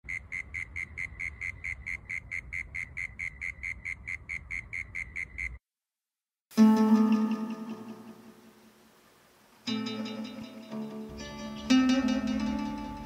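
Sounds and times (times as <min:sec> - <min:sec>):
cricket chirping: 0:00.0 - 0:05.6
plucked guitar music: 0:06.5 - 0:08.6, 0:09.6 - 0:13.0.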